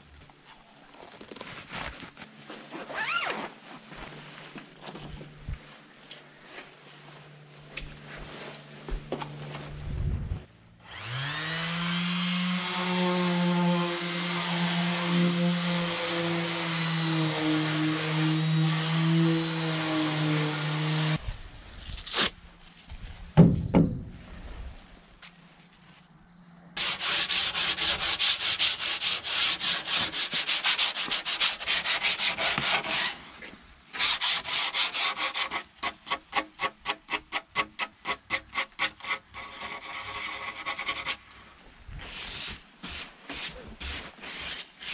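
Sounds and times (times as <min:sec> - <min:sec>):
electric sander running: 0:10.8 - 0:21.2
hand sanding with sandpaper: 0:26.8 - 0:41.3, 0:42.0 - 0:44.9.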